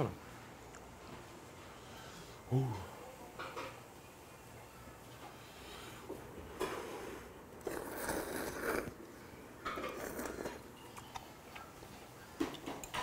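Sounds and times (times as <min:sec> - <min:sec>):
man slurping noodles: 0:07.6 - 0:09.0.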